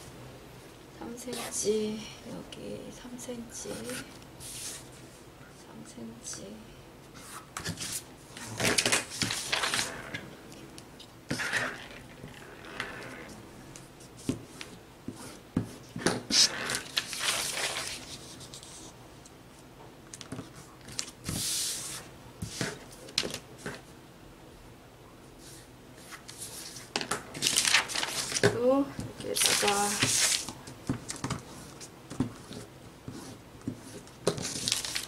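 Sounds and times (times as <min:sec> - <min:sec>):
paper rustling and sliding: 0:03.9 - 0:05.1, 0:07.1 - 0:10.2, 0:16.3 - 0:18.9, 0:20.3 - 0:23.8, 0:25.4 - 0:28.5, 0:29.3 - 0:35.0.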